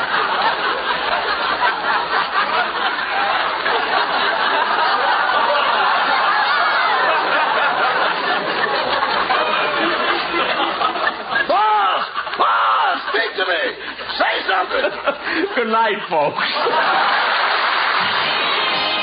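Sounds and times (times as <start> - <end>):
studio audience laughing: 0.0 - 19.0.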